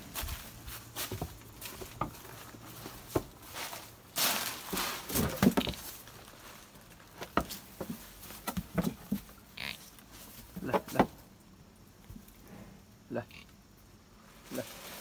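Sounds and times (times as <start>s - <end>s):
footsteps crunching through dry leaves: 0.0s - 7.2s
rustling: 0.0s - 11.0s, 14.2s - 15.0s.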